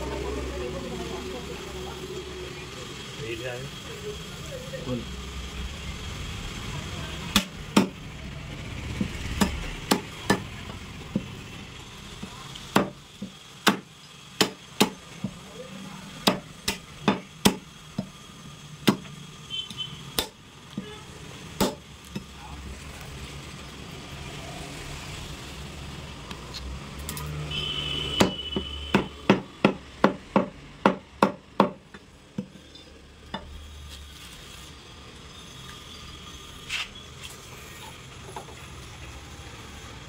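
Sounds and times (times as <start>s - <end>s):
cleaver chopping meat and bone: 7.3s - 8.0s, 8.9s - 10.5s, 12.2s - 15.4s, 16.2s - 18.2s, 18.8s - 19.1s, 20.2s - 20.4s, 21.6s - 22.3s, 28.2s - 32.5s.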